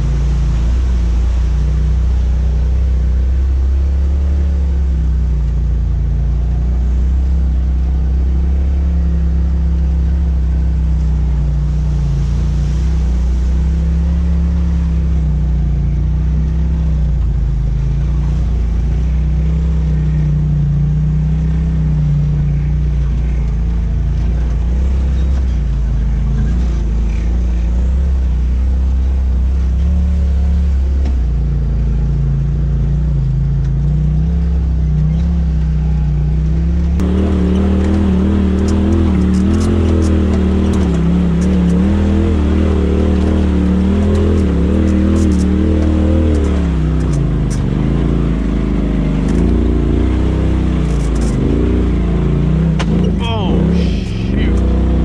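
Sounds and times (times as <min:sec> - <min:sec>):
engine droning at low speed: 0:00.0 - 0:55.0.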